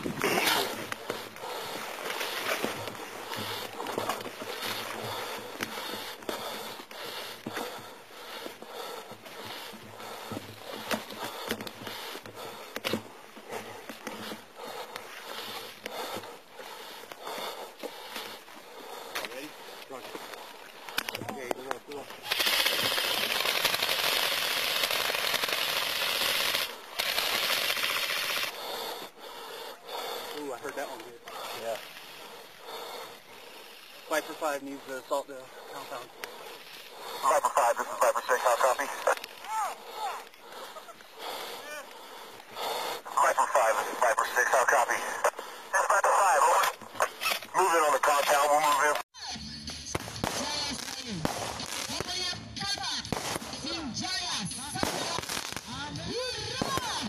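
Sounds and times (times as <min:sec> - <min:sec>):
automatic gunfire: 0:22.2 - 0:28.5.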